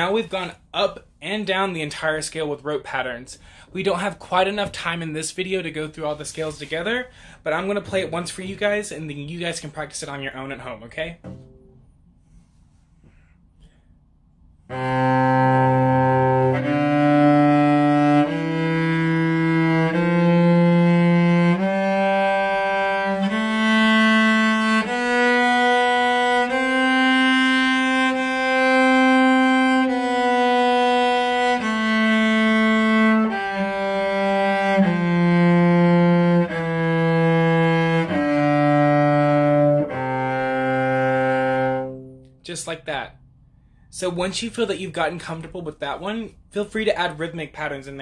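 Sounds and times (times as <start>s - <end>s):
cello playing a slow scale: 11.2s - 11.9s, 14.6s - 42.4s.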